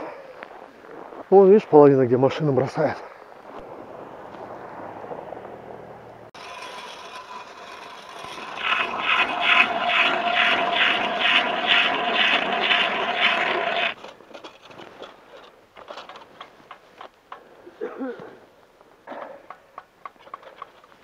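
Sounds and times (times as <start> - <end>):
ice auger scraping ice: 6.4 - 14.0.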